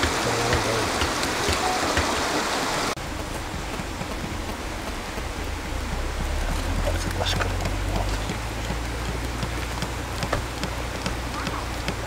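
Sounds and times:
stream water hissing: 0.0 - 12.0
low hum: 3.0 - 12.0.

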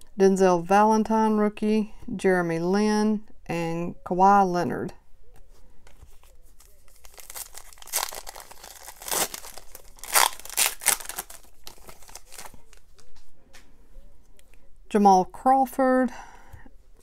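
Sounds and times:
foil wrapper tearing and crinkling: 6.6 - 13.0.

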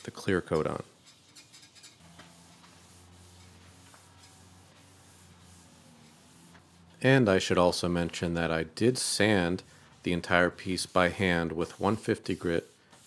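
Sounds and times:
rag rubbing on wood: 0.9 - 7.0, 9.2 - 13.0.

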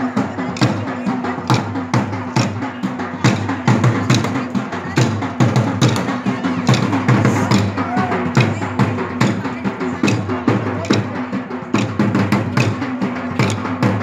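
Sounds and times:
festive music with drum beat: 0.0 - 14.0
wooden sticks clacking: 11.8 - 12.0, 13.4 - 13.6.

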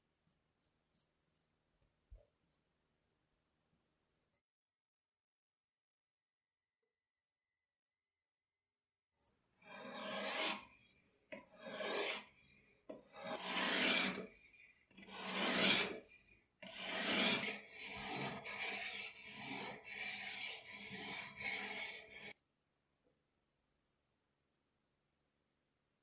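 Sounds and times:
whetstone scraping steel blade: 13.2 - 14.3, 16.6 - 22.4.

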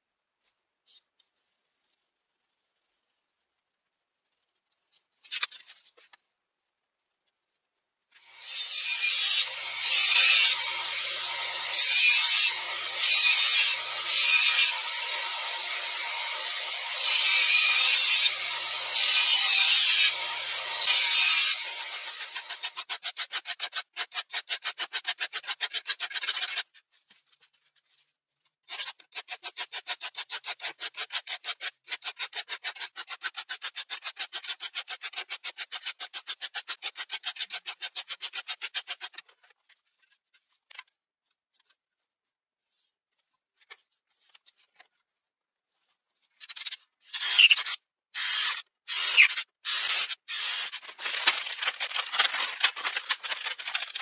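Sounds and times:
file scraping steel blade: 8.3 - 26.8, 28.7 - 39.3, 46.4 - 51.4
scraping and rattling: 50.6 - 54.0.

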